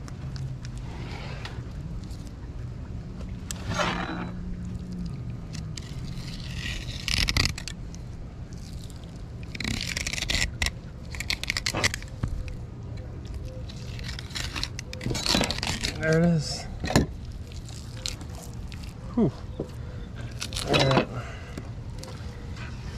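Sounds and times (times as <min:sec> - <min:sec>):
knife scraping and slicing fish: 0:05.5 - 0:07.8, 0:08.5 - 0:12.5, 0:13.3 - 0:16.1.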